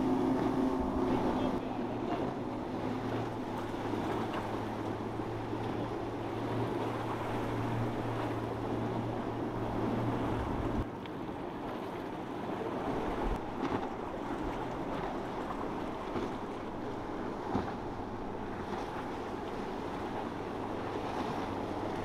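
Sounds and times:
water splashing: 0:00.0 - 0:10.9
outboard motor drone: 0:00.0 - 0:22.0
surf: 0:00.0 - 0:22.0.

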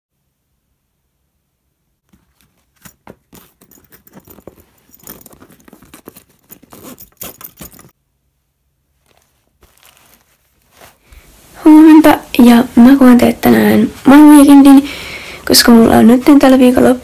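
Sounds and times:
cloth rustling: 0:02.0 - 0:08.0, 0:08.8 - 0:12.9
zipper pulls clicking and jingling: 0:02.2 - 0:08.0
bag zipper opening: 0:02.8 - 0:07.9.

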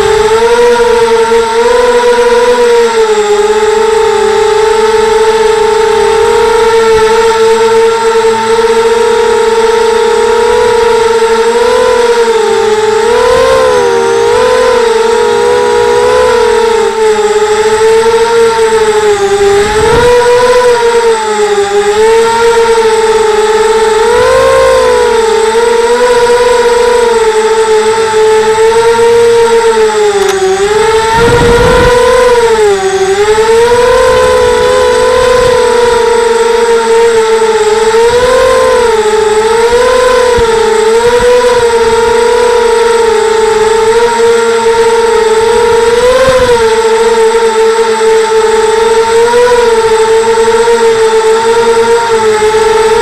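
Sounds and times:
drone motors whining: 0:00.0 - 0:53.0
low rumbles: 0:30.0 - 0:44.0.

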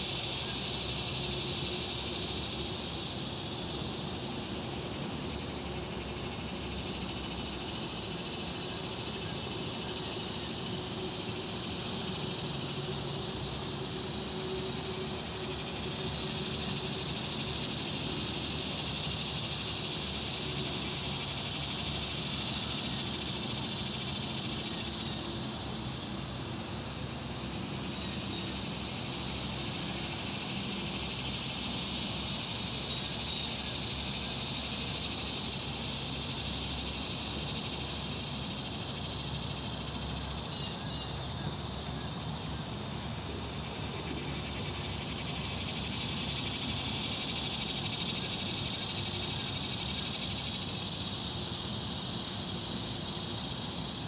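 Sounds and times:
insects buzzing: 0:00.0 - 0:54.0.

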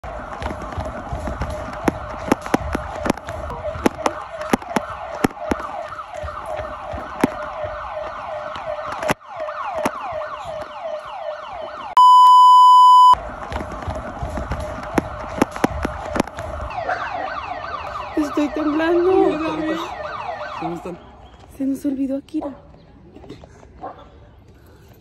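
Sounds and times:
siren wailing in falling sweeps: 0:00.0 - 0:12.0, 0:14.2 - 0:20.9
steady beep tone: 0:12.0 - 0:13.2.

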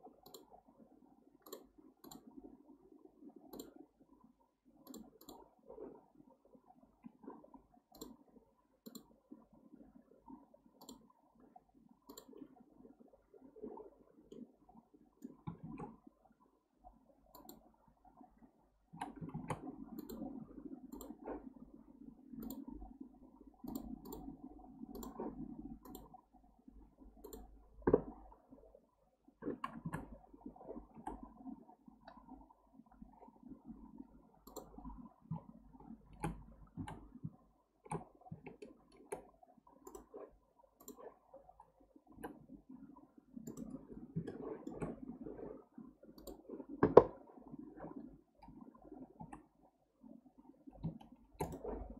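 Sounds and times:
mouse and keyboard clicks: 0:03.5 - 0:03.8, 0:04.8 - 0:05.4, 0:12.1 - 0:12.4, 0:19.0 - 0:20.3, 0:20.9 - 0:21.3, 0:22.4 - 0:22.7, 0:23.6 - 0:24.3, 0:27.2 - 0:28.1, 0:36.1 - 0:37.1, 0:37.9 - 0:40.2, 0:50.8 - 0:51.9.

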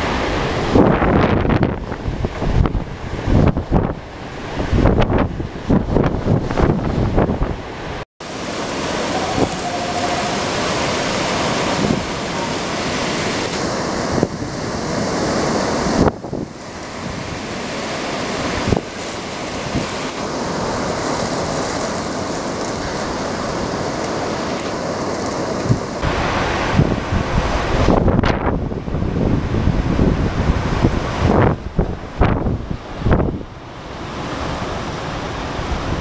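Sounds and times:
storm wind: 0:00.0 - 0:36.0
wind buffeting microphone: 0:00.0 - 0:36.0
driving rain: 0:08.2 - 0:32.5.

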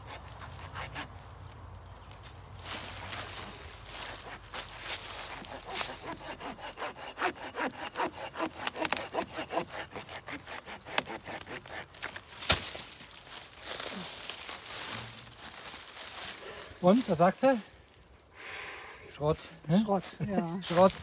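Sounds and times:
hand saw cutting wood: 0:00.0 - 0:01.1, 0:04.0 - 0:12.6
branch cracking: 0:11.0 - 0:16.4.

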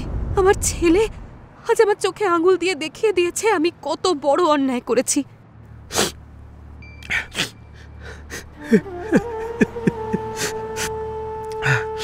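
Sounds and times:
soft background music: 0:06.7 - 0:12.0
sharp gasping breaths: 0:07.0 - 0:08.7
man crying: 0:08.1 - 0:12.0.

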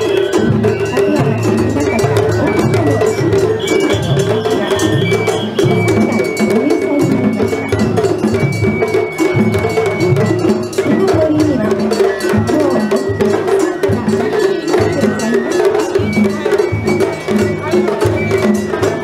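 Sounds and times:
bamboo flute high notes: 0:00.0 - 0:11.3
clanging metal percussion: 0:00.0 - 0:19.0
steady drumming: 0:00.0 - 0:19.0.

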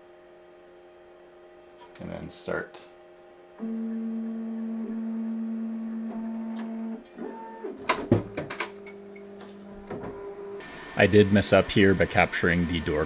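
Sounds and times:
printer motors humming: 0:03.6 - 0:13.0.

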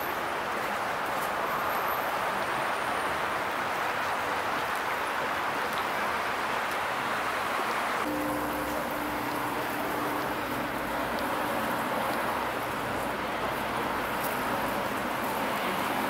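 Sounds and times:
city street traffic: 0:00.0 - 0:16.0
steady low hum: 0:08.1 - 0:14.4.

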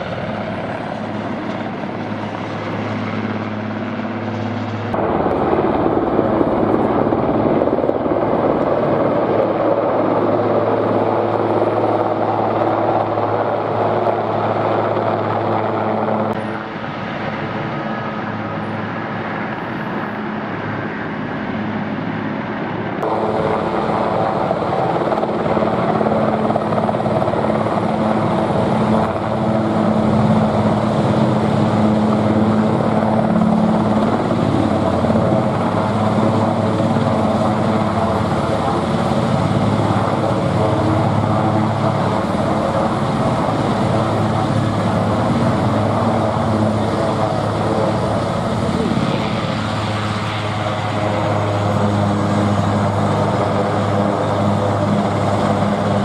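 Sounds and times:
helicopter hovering: 0:00.0 - 0:56.0.

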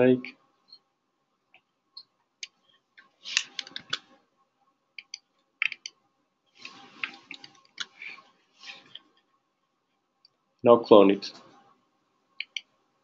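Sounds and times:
keyboard typing clicks: 0:05.0 - 0:05.9, 0:12.4 - 0:12.7.

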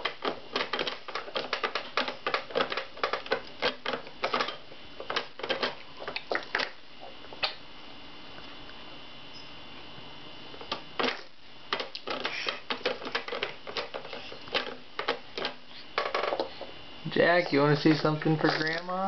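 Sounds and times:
plastic toys clicking and clattering: 0:00.0 - 0:06.8, 0:11.0 - 0:16.6, 0:17.3 - 0:19.0.

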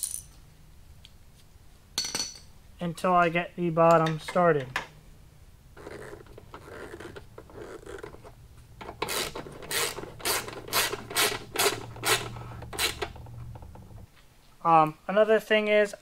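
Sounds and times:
ratchet wrench clicking: 0:09.0 - 0:13.2.

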